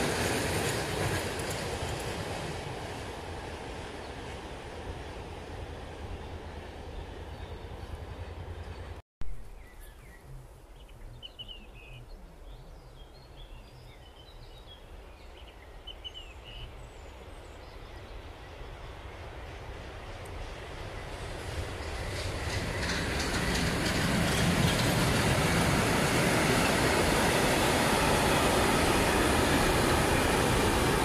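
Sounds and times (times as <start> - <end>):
freight train approaching: 0.0 - 9.0, 14.8 - 31.0
birds chirping: 6.5 - 19.8.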